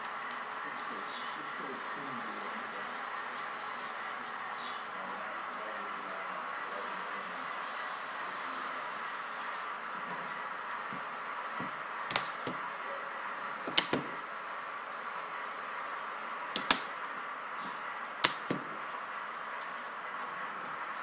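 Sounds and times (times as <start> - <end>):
steady hum: 0.0 - 21.0
sharp clicks: 12.0 - 12.6, 16.5 - 17.2.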